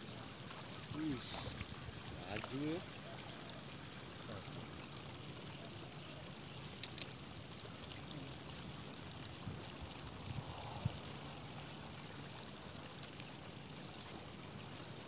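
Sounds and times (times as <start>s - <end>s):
short faint clicks: 6.7s - 7.1s.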